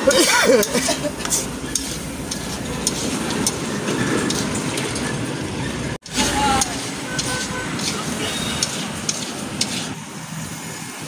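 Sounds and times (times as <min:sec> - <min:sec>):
metal spatula scraping a pan: 0:00.6 - 0:05.1, 0:06.0 - 0:10.0.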